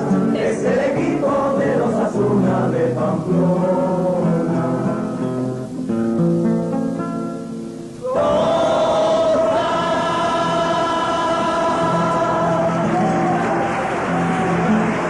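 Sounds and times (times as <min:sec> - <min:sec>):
choir singing a held chord: 0:00.0 - 0:04.8, 0:08.0 - 0:13.6
guitars and bandurrias: 0:00.0 - 0:15.0.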